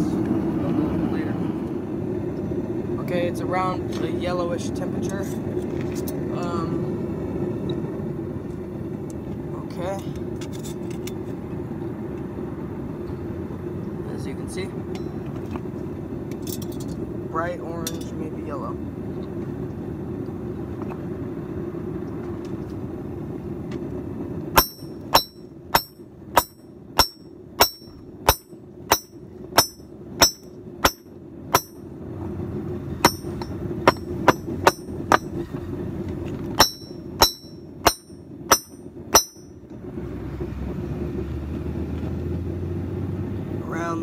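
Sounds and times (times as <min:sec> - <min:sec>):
hammer striking anvil: 0:24.6 - 0:31.8, 0:33.0 - 0:35.4, 0:36.6 - 0:39.6.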